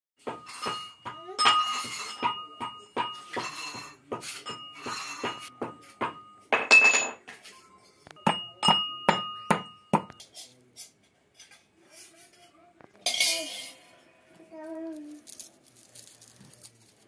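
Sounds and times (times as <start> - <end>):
metallic clinks on kitchenware: 0.2 - 7.2, 8.2 - 10.6, 13.0 - 13.8.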